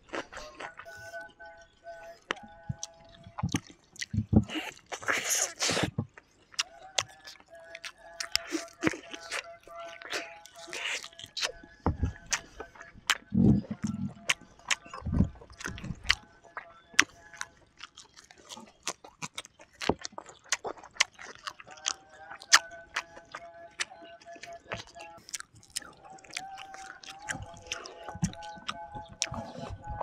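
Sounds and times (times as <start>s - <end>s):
faint steady tones: 0.0s - 4.5s, 21.6s - 30.0s
person chewing and lip smacking: 0.0s - 30.0s.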